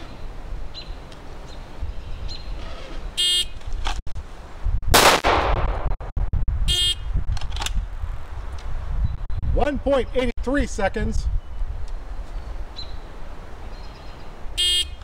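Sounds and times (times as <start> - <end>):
pistol shot: 4.9 - 6.0.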